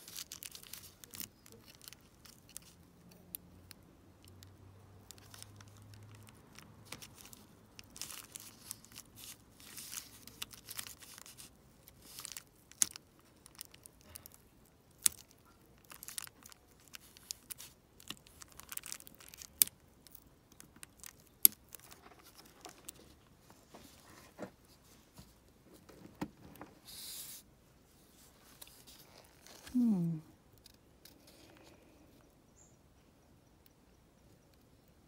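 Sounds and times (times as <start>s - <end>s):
plastic crinkling and rustling: 0.0s - 27.1s, 28.0s - 30.2s.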